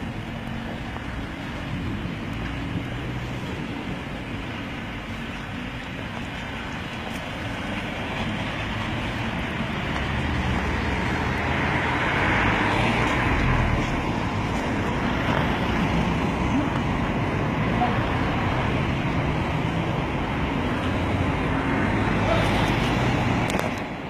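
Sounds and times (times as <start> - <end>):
vehicle passing: 0.0 - 23.8
road traffic noise: 0.0 - 24.0.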